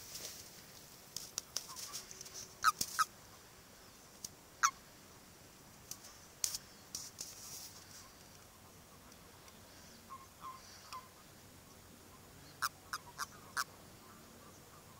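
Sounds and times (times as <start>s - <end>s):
toads croaking: 2.6s - 3.1s, 4.6s - 4.8s, 12.5s - 13.8s.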